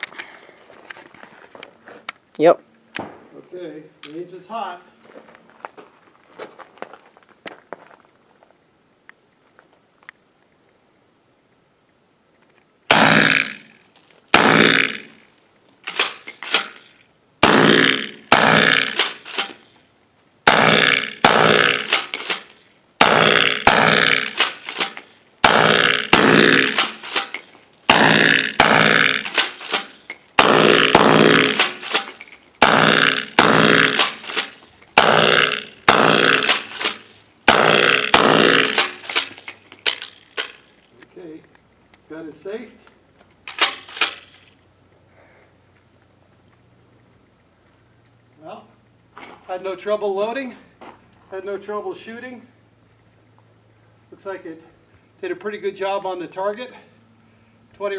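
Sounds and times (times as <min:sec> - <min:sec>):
shotgun blasts echoing: 0:03.0 - 0:03.4, 0:12.9 - 0:13.7, 0:14.3 - 0:15.2, 0:17.4 - 0:19.6, 0:20.5 - 0:40.5.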